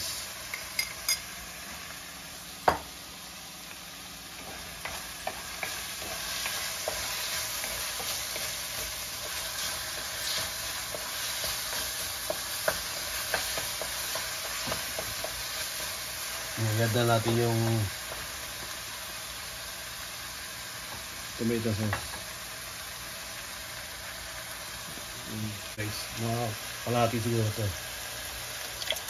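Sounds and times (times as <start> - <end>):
meat mixture sizzling in a pan: 0.0 - 29.0
wooden spoon scraping a pan: 4.4 - 15.9.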